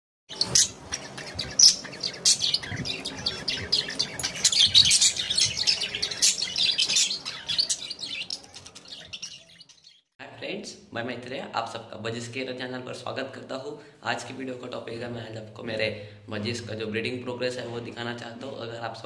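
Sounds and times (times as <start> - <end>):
budgerigars chattering: 0.3 - 10.0.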